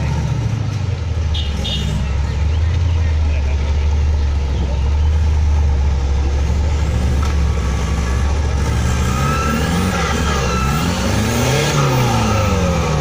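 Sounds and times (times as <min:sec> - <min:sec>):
off-road vehicle engine revving: 0:00.0 - 0:13.0.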